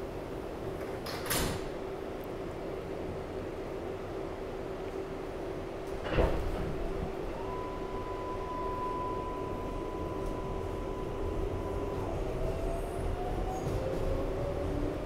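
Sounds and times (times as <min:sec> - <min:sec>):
train rumble: 0:00.0 - 0:15.0
train propulsion whine rising: 0:06.8 - 0:15.0.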